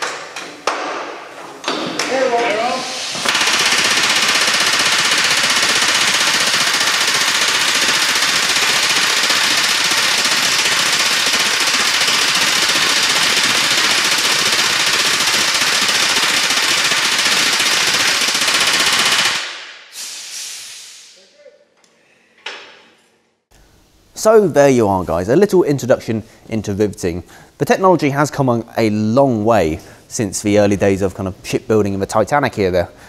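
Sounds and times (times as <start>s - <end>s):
pneumatic riveting gun hammering: 3.1s - 20.2s.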